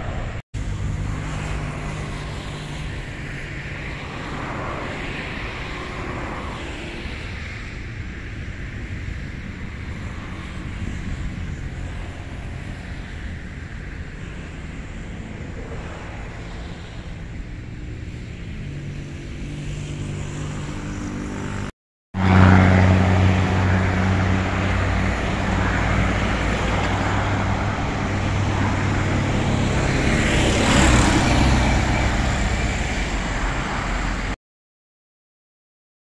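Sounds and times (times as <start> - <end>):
engine humming: 8.6 - 34.3.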